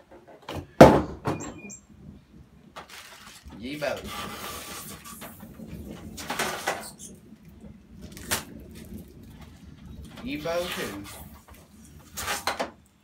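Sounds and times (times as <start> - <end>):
packaging scraping and rustling: 2.8 - 7.1, 9.9 - 12.8.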